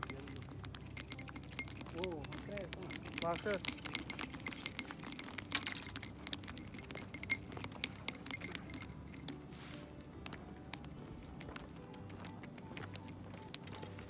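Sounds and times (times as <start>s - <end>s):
fishing tackle metallic clinks: 0.0s - 9.8s.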